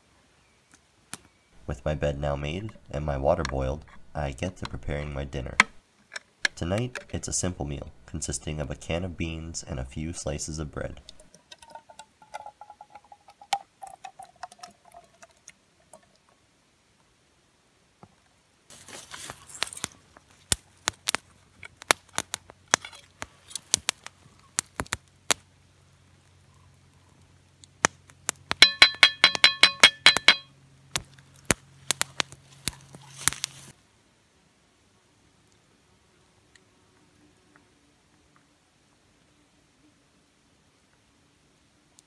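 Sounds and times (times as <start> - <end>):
campfire crackling: 0.7 - 35.8
rapid clinking: 28.6 - 30.5.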